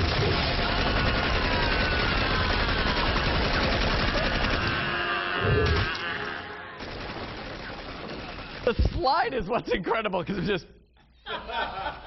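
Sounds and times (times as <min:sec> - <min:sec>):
rapid gunfire: 0:00.0 - 0:05.9, 0:06.8 - 0:09.2.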